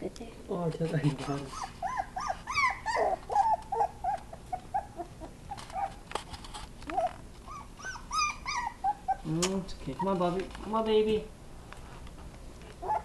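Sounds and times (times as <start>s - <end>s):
puppy whimpering: 1.1s - 6.0s, 6.8s - 10.4s, 12.7s - 13.0s.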